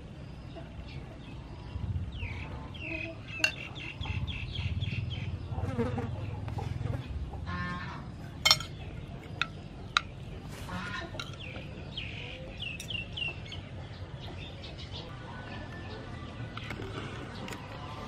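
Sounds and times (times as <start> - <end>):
chickens clucking: 2.4 - 18.0
cutlery clinking on china plate: 8.4 - 10.2.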